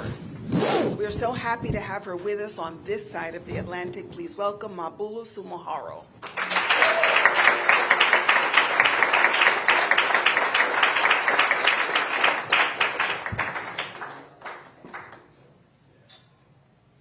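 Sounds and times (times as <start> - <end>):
audience applauding: 6.2 - 15.4.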